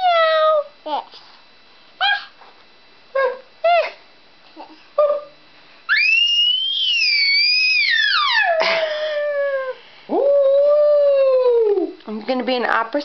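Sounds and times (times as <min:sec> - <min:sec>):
baby squealing: 0:05.9 - 0:08.6.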